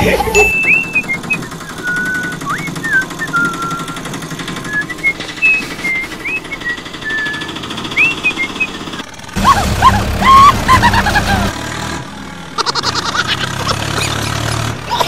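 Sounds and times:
auto-rickshaw engine putter: 0:00.0 - 0:15.0
birds chirping and whistling: 0:00.4 - 0:10.6.

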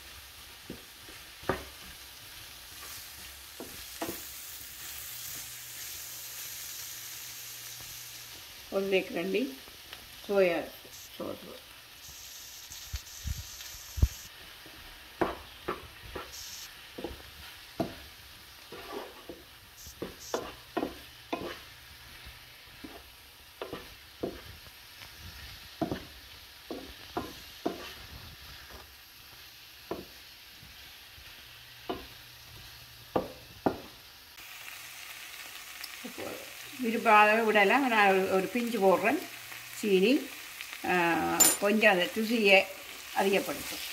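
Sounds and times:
light frying sizzle: 0:00.0 - 0:43.9
wooden spoon scraping a pan: 0:14.5 - 0:28.9.

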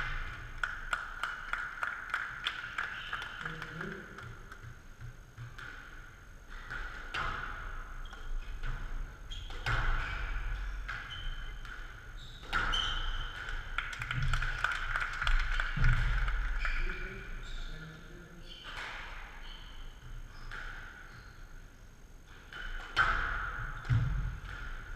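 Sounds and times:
squash ball hits: 0:03.8 - 0:14.6.

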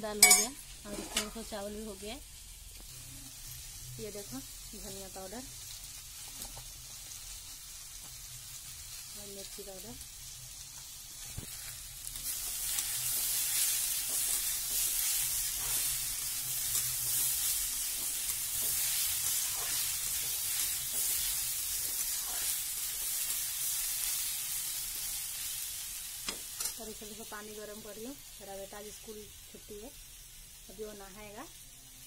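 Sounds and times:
food sizzling in oil: 0:00.0 - 0:32.0
metal spatula scraping pan: 0:00.2 - 0:01.4.

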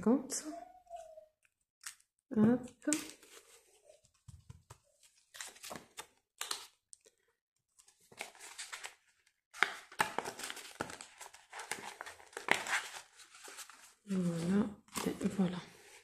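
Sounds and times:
paper banknotes rustling: 0:07.8 - 0:14.3
plastic binder sleeves crinkling: 0:07.8 - 0:14.3.

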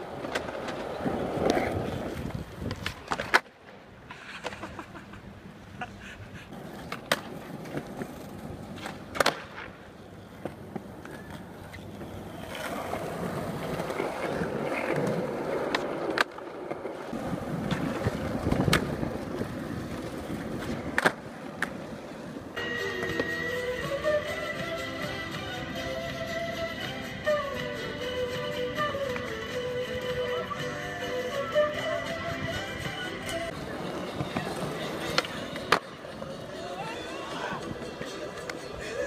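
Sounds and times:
skateboard popping and landing: 0:00.0 - 0:04.8, 0:06.5 - 0:23.4, 0:33.2 - 0:36.6
skateboard wheels rolling on concrete: 0:00.0 - 0:39.0.

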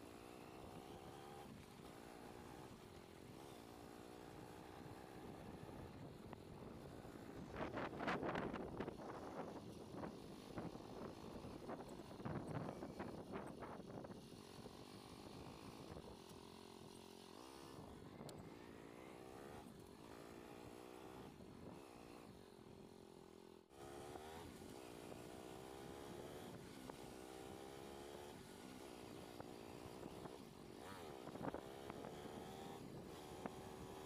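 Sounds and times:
motorcycle engine revving: 0:00.0 - 0:34.0.

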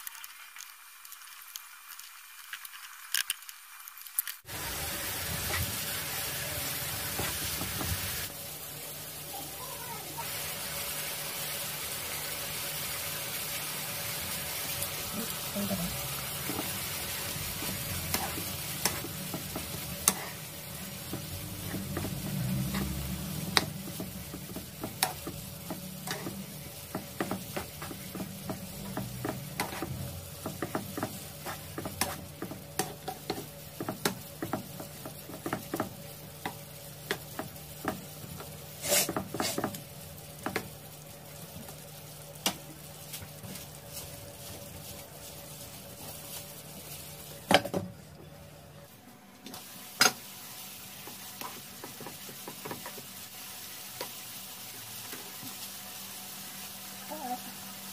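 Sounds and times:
meat and peppers sizzling: 0:00.0 - 0:57.9
wooden spatula scraping pan: 0:17.6 - 0:20.4, 0:21.0 - 0:35.9, 0:38.7 - 0:39.8.

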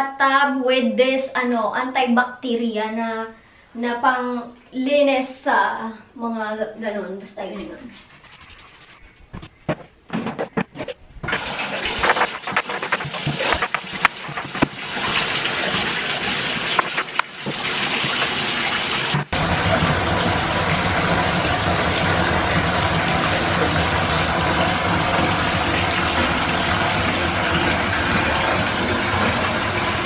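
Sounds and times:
tub cleaning knocks: 0:09.4 - 0:30.0
irregular water sounds: 0:10.6 - 0:30.0
water pouring into bathtub: 0:11.3 - 0:30.0.

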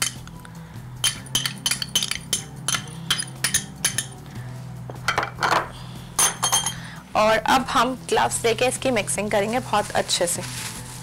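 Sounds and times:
spoon clinking against glass dish: 0:01.0 - 0:04.2, 0:06.2 - 0:06.8.

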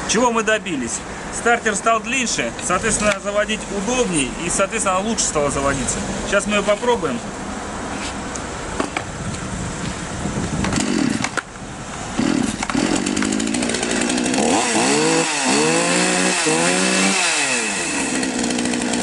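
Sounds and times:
chainsaw pull-start: 0:10.6 - 0:11.5, 0:12.2 - 0:19.0
chainsaw engine revving: 0:10.7 - 0:11.4, 0:12.1 - 0:19.0.

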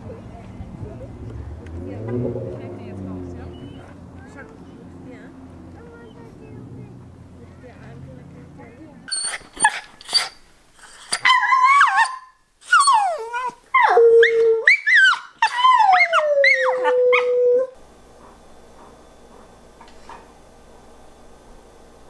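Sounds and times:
puppy howling: 0:11.1 - 0:17.8.

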